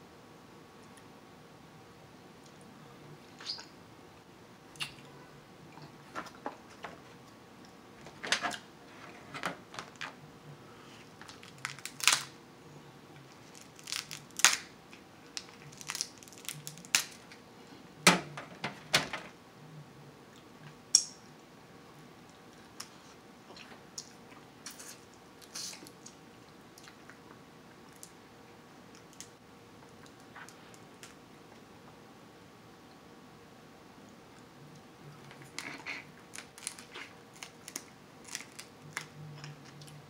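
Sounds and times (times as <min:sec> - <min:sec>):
crab shells cracking: 0:11.2 - 0:12.3, 0:13.4 - 0:14.7, 0:15.4 - 0:17.3, 0:35.4 - 0:39.1.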